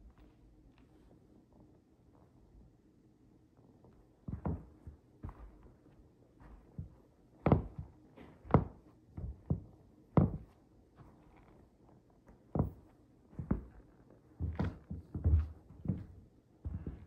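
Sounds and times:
footsteps on a rug: 0:04.3 - 0:11.7, 0:12.3 - 0:17.0.

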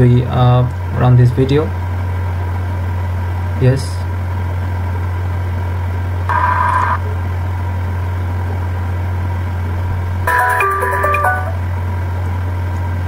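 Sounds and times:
short high-pitched sound: 0:10.3 - 0:11.7.

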